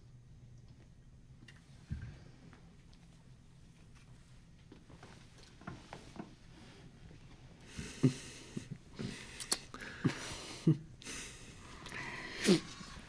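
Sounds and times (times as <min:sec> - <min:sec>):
woman sniffing: 0:12.0 - 0:13.0.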